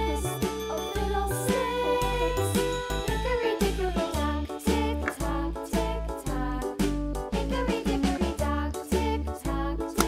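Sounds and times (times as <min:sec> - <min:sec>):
cheerful children's music: 0:00.0 - 0:10.0.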